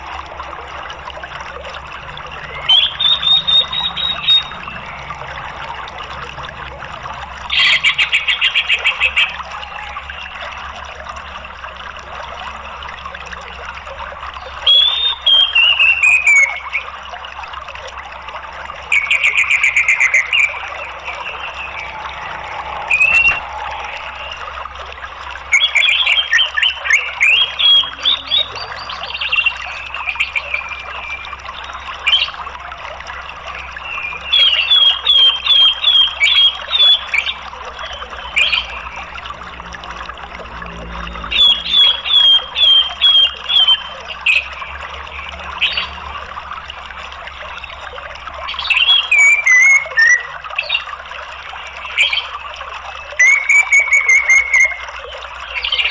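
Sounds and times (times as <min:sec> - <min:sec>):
thrush singing: 0:00.0 - 0:12.8, 0:17.7 - 0:32.4
running water: 0:00.0 - 0:55.9.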